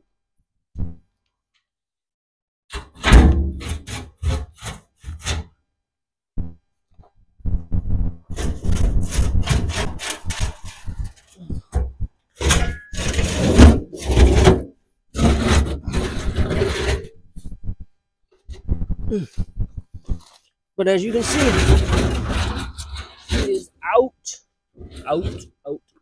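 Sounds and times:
metal tank scraping on gravel: 3.4s - 5.5s, 8.3s - 11.4s, 12.4s - 17.2s, 21.0s - 23.7s, 24.8s - 25.6s.

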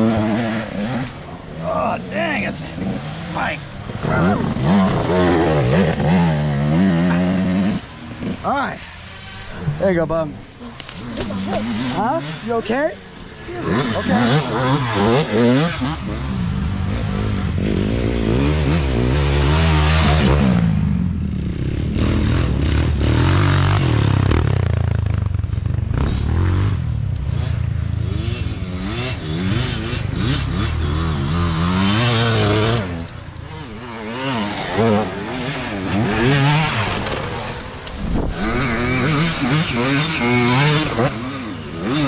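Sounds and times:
dirt bike engines revving: 0.0s - 42.0s.

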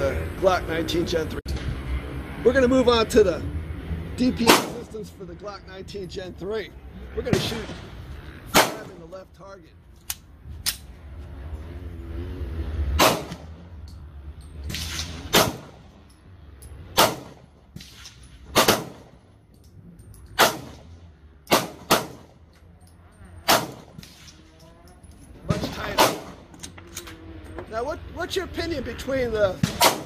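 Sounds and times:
pistol shots: 4.4s - 4.8s, 8.5s - 9.0s, 13.0s - 13.5s, 14.7s - 15.8s, 17.0s - 19.2s, 20.4s - 20.9s, 21.5s - 22.3s, 23.4s - 24.3s, 25.6s - 26.4s, 29.6s - 30.0s.

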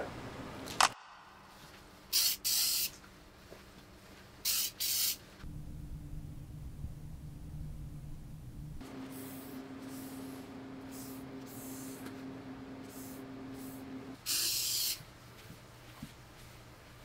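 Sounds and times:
spray bottle spritzing: 2.1s - 3.0s, 4.4s - 5.2s, 12.9s - 15.0s
steady low hum: 5.3s - 14.3s.

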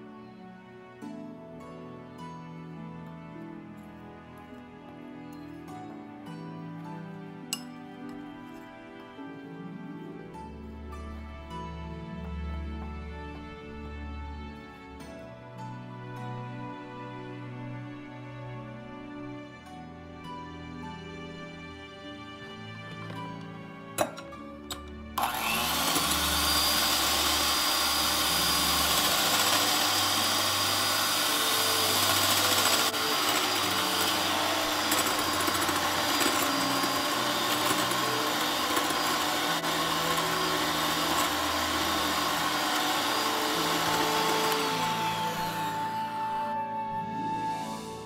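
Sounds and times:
electric hand mixer whirring: 24.0s - 46.8s.

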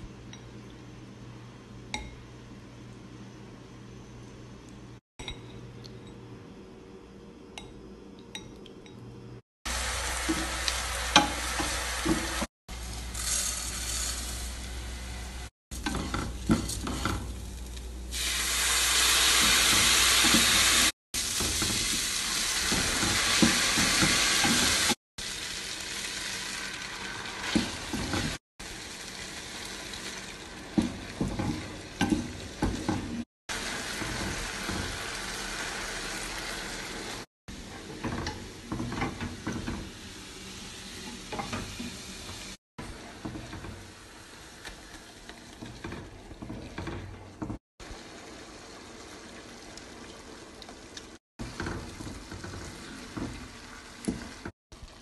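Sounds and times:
rice sizzling in a pan: 9.7s - 46.0s, 47.8s - 55.0s.

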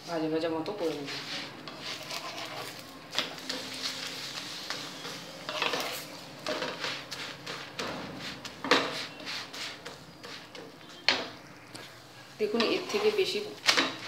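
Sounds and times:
oil sizzling: 0.9s - 11.3s
spatula scraping hot griddle: 1.0s - 10.7s, 12.4s - 14.0s.

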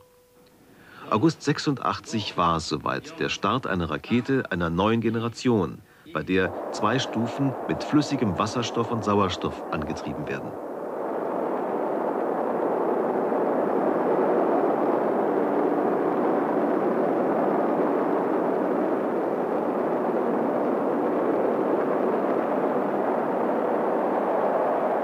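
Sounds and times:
rocket engine roar: 6.1s - 25.0s.

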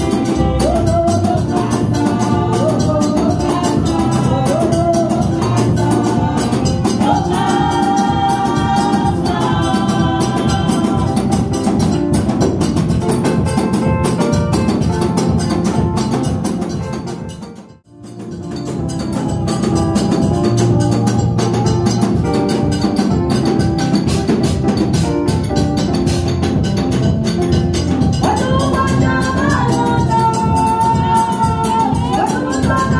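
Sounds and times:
keyboard: 0.0s - 32.9s
live band music: 0.0s - 32.9s
steady drum beat: 0.0s - 32.9s
person singing: 18.9s - 22.5s, 28.2s - 32.9s.

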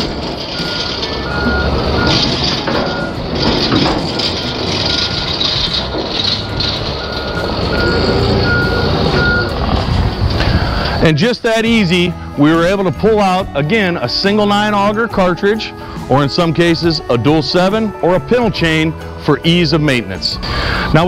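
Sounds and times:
forklift backup alarm beeping: 0.0s - 9.8s, 10.4s - 11.2s
forklift engine running: 0.0s - 19.8s.

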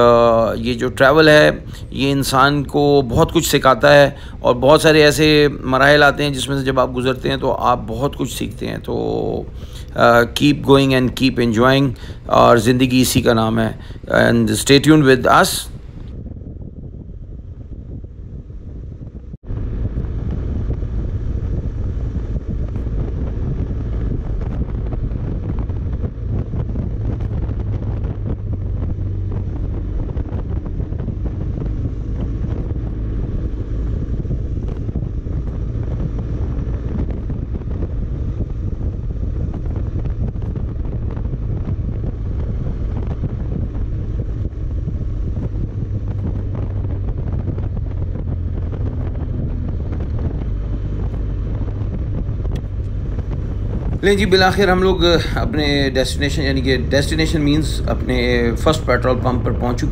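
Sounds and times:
wind rushing over microphone: 0.0s - 59.9s
motorcycle engine running low: 15.3s - 59.9s.

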